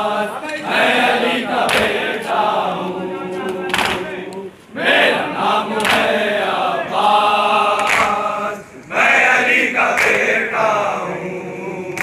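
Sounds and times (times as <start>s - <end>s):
men chanting in chorus: 0.0s - 12.0s
hands slapping chests: 1.7s - 2.1s, 3.7s - 4.1s, 5.8s - 6.1s, 7.8s - 8.2s, 10.0s - 10.3s.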